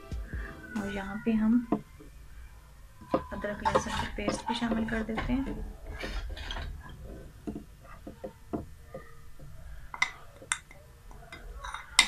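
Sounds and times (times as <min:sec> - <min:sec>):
spoon scraping ceramic bowl: 0:03.6 - 0:05.3.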